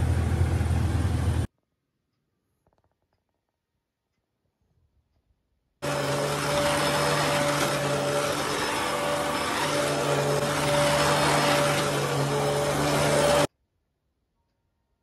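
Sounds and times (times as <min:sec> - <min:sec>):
vacuum cleaner on carpet: 0:05.8 - 0:13.5.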